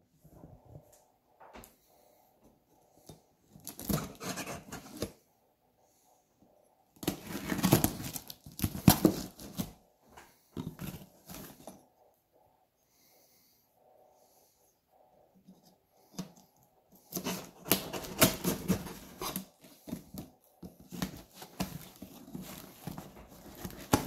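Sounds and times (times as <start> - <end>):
scraping and tearing: 7.0 - 9.7.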